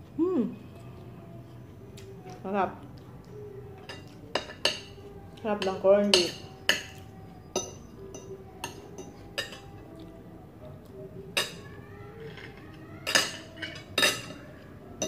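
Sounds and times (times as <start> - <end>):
cutlery clinking on ceramic plate: 5.6 - 9.7, 12.3 - 14.4.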